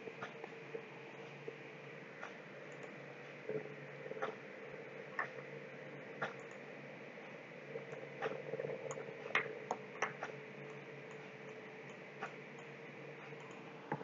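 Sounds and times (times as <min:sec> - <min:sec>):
faint steady hum: 0:00.0 - 0:14.0
computer mouse clicking: 0:02.2 - 0:04.4, 0:06.2 - 0:06.7, 0:07.8 - 0:14.0.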